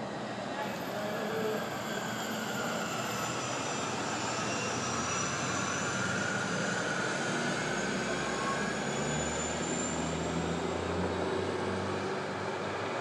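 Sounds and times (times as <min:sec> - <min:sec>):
rumble of passing vehicles: 0:05.0 - 0:13.0.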